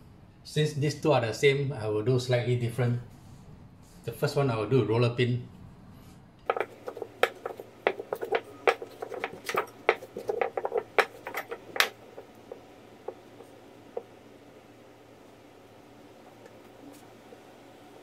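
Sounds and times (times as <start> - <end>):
rolling pin tapping on pastry mat: 6.5 - 14.2.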